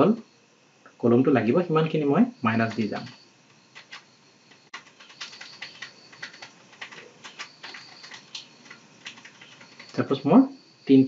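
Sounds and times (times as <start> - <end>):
keyboard key clicks: 2.7 - 10.0.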